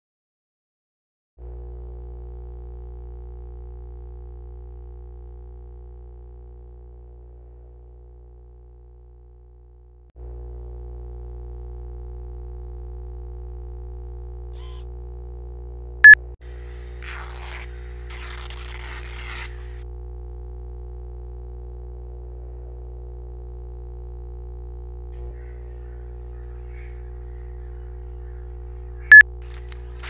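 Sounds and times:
low electronic drone: 20.0s - 29.4s.

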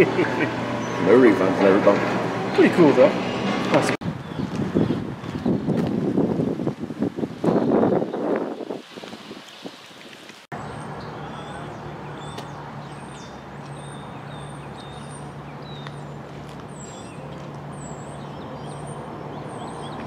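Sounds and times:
road traffic hum: 0.0s - 8.1s, 10.2s - 20.0s
small birds chirping and whistling: 9.5s - 20.0s.

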